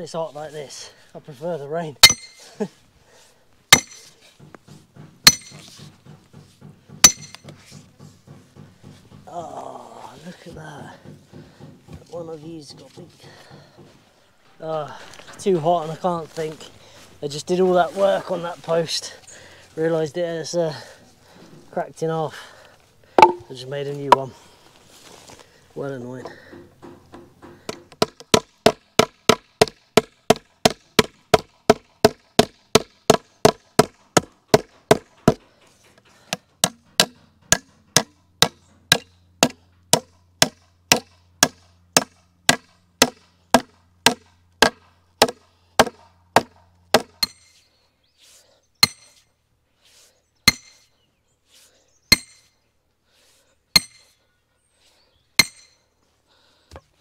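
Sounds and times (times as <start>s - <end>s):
hammer striking wooden post: 2.0s - 2.4s, 3.7s - 9.4s, 23.2s - 23.5s, 26.4s - 35.5s, 36.3s - 47.6s, 48.8s - 49.1s, 50.5s - 50.8s, 52.1s - 52.5s, 53.8s - 54.1s, 55.4s - 55.8s
metal bar strikes ringing: 2.0s - 2.4s, 5.3s - 5.6s, 7.0s - 7.4s, 23.2s - 23.5s.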